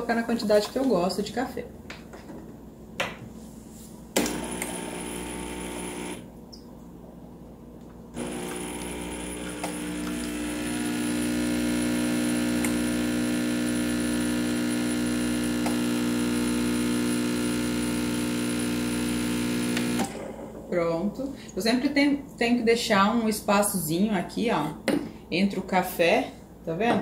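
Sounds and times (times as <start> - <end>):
espresso machine pump humming: 4.2 - 6.3, 8.2 - 20.3.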